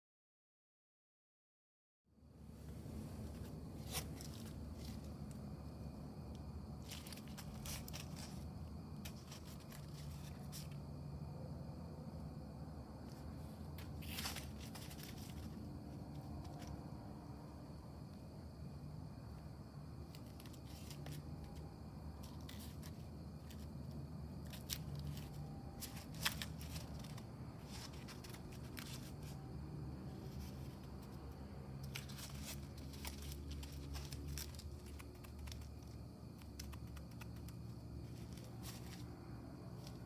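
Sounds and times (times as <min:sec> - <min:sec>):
cardboard crinkling and creaking: 0:03.2 - 0:05.4, 0:06.6 - 0:10.8, 0:13.1 - 0:16.8, 0:20.1 - 0:21.6, 0:22.2 - 0:29.5, 0:30.1 - 0:39.1.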